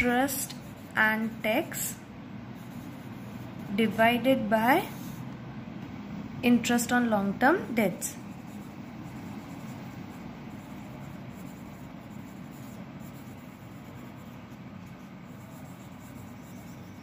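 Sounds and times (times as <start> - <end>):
pencil scratching on paper: 0.0 - 5.3, 7.6 - 17.0
faint room hiss and hum: 0.0 - 17.0.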